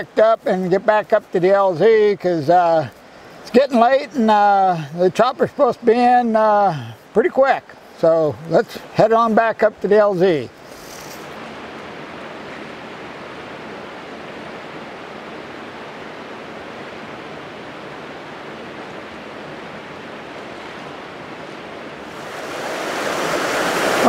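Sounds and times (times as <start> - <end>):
creek water rushing over rocks: 0.0 - 24.0.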